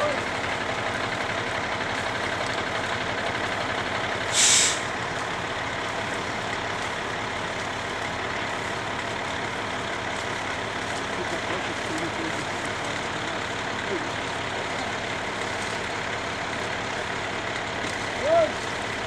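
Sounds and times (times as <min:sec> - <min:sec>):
truck engine running: 0:00.0 - 0:19.0
air brake hiss: 0:04.3 - 0:04.9.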